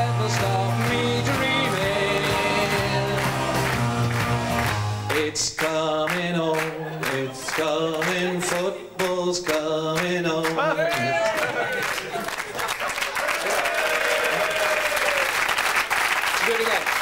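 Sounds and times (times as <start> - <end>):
man singing into microphone: 0.0 - 3.7, 5.1 - 11.4
backing track with steady beat: 0.0 - 10.2.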